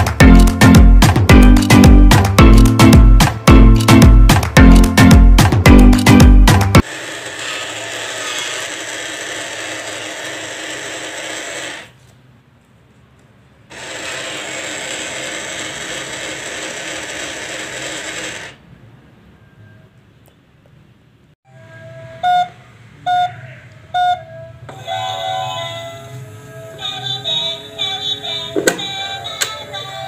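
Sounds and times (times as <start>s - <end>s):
small motor whirring: 6.8s - 11.9s, 13.7s - 18.6s, 25.5s - 29.5s.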